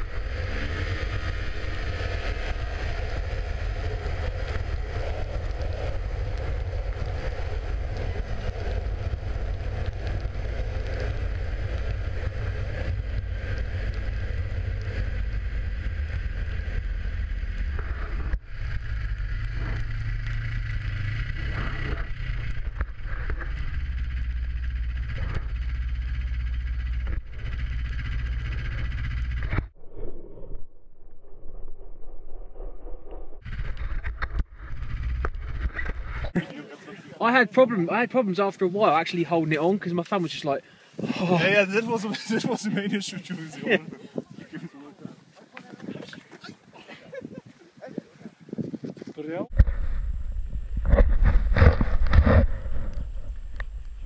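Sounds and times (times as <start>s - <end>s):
snowmobile engine running: 0.0s - 29.7s, 33.4s - 40.3s, 41.0s - 44.9s
wind rumble on microphone: 0.0s - 36.4s, 40.9s - 54.0s.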